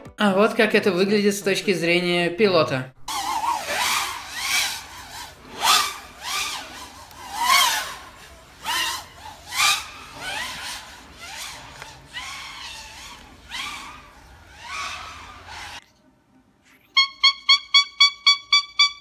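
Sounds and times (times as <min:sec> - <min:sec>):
drone motors whining: 0:03.1 - 0:15.8.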